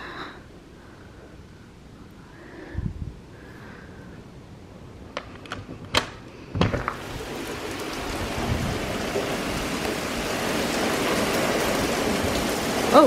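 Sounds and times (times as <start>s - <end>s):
heavy rain pouring on pavement: 6.6s - 13.0s.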